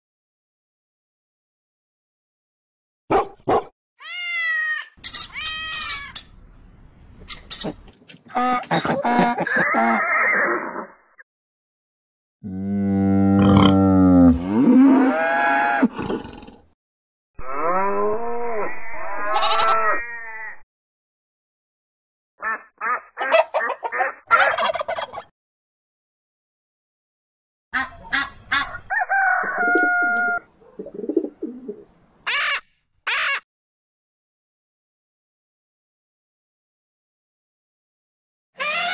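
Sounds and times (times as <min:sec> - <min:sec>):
dog barking: 0:03.1 - 0:03.7
cat meowing: 0:04.0 - 0:06.2
turkey gobbling: 0:22.9 - 0:25.3, 0:27.8 - 0:31.8.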